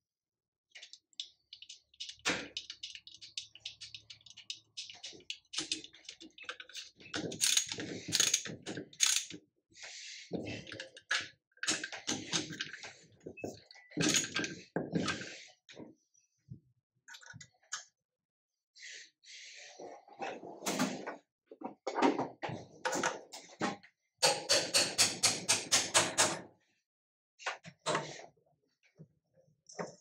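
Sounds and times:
socket ratchet clicking: 9.0s - 9.3s.

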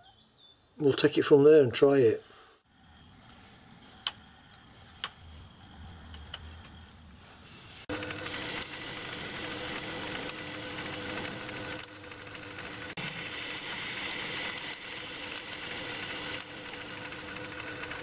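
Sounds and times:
lathe motor running: 7.8s - 18.0s
lathe tool cutting metal: 7.9s - 18.0s.

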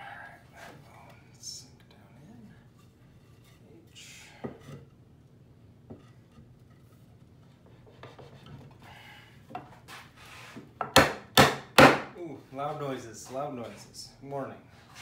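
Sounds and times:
wooden parts rubbing together: 6.0s - 8.8s.

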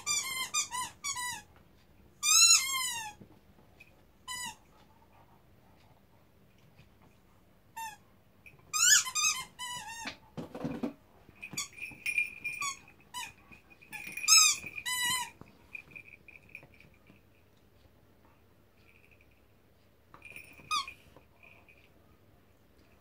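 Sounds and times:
dog toy squeaking: 0.0s - 1.5s, 2.2s - 3.2s, 4.2s - 4.6s, 7.8s - 8.0s, 8.7s - 10.2s, 11.4s - 16.6s, 20.2s - 21.1s
dog chewing toy: 11.5s - 16.7s.

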